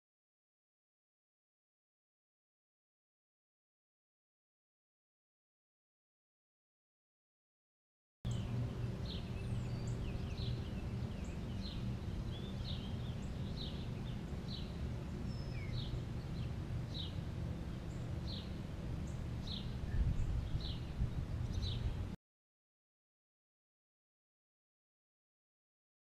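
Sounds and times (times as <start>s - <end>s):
low outdoor rumble: 8.3s - 22.2s.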